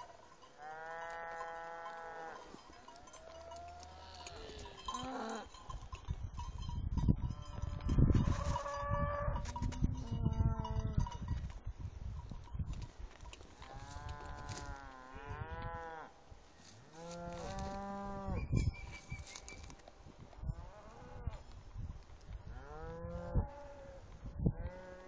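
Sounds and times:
cows mooing: 0.6s - 5.6s, 13.7s - 16.1s, 16.9s - 18.4s.

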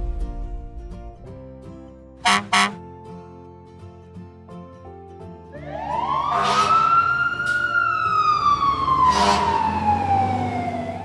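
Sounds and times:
cartoon fire truck siren wailing: 5.5s - 11.0s.

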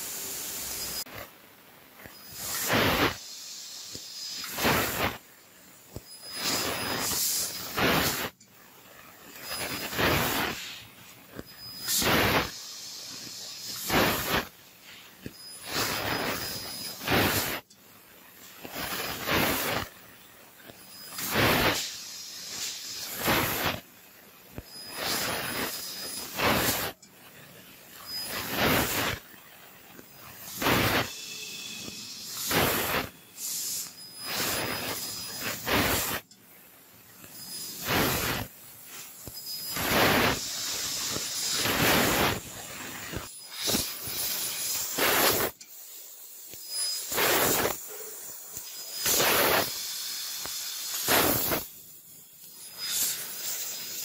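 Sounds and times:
laser cutter gas hissing: 0.0s - 54.0s.

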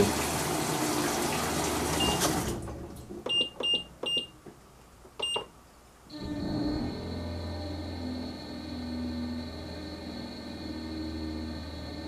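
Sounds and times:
water rushing into washer: 0.0s - 3.3s
washer motor hum and whine: 0.0s - 4.4s, 6.1s - 12.0s
short high beeps with clicks: 5.2s - 5.5s.

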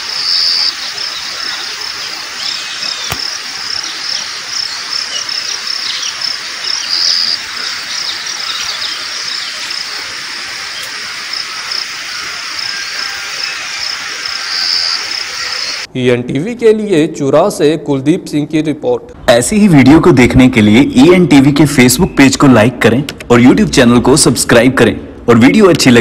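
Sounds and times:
insects chirring: 0.0s - 15.9s
bird chirps: 0.2s - 10.0s.

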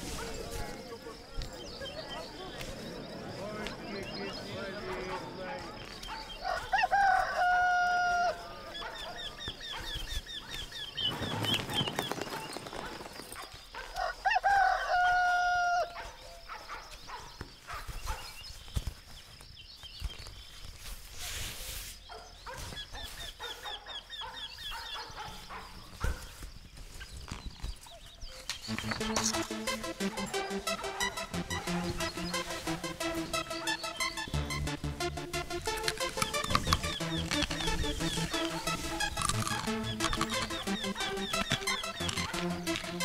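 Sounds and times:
rooster crowing: 6.4s - 8.7s, 14.0s - 16.0s.

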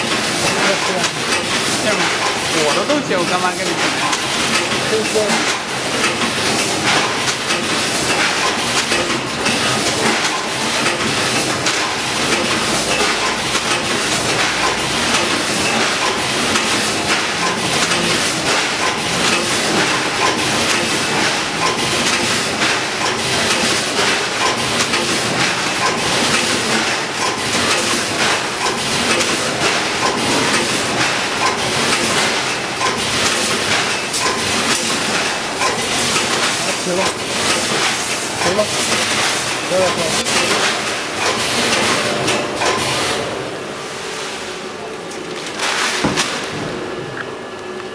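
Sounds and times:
packaging machine clattering: 0.0s - 43.3s, 45.0s - 47.0s
constant machine hiss: 0.0s - 45.7s.

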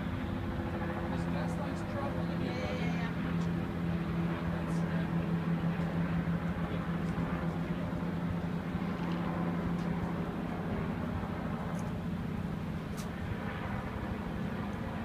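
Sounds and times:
street noise: 0.0s - 15.0s.

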